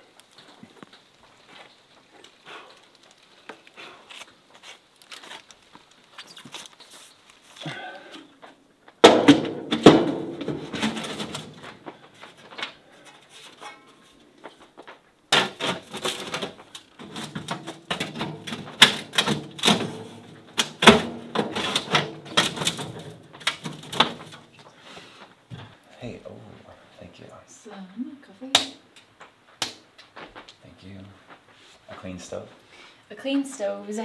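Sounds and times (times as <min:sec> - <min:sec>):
metal stovepipe clanking: 0:12.9 - 0:14.0.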